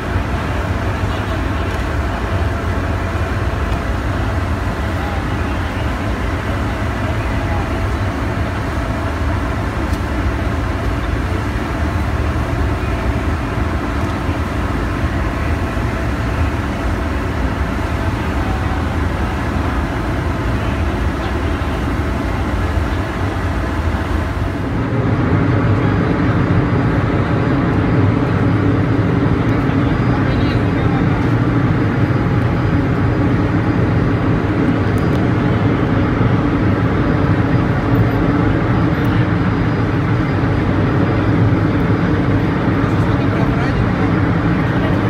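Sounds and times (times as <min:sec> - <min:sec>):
ship machinery humming: 0:00.0 - 0:45.0.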